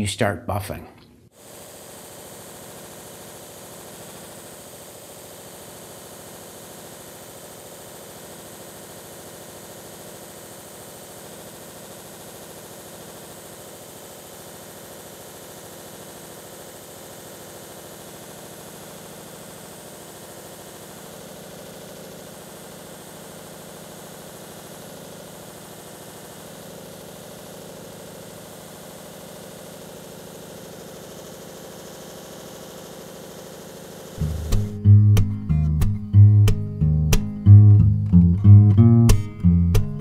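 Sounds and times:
buffer motor humming: 34.2 - 40.0.

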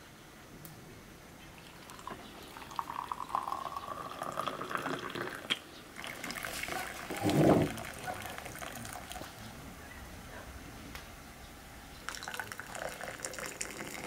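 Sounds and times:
tea pouring into a glass: 1.6 - 9.4, 12.0 - 14.0.

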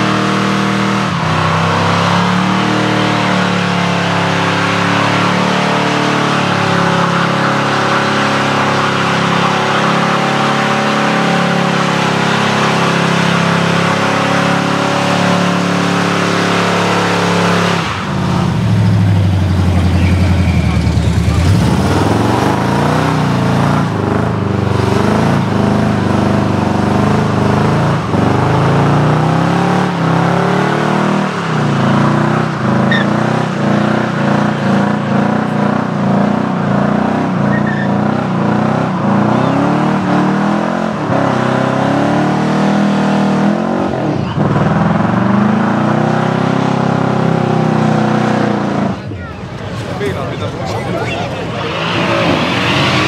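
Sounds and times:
car engine at high revs: 0.0 - 53.0
tyres hissing and squealing: 49.8 - 53.0.

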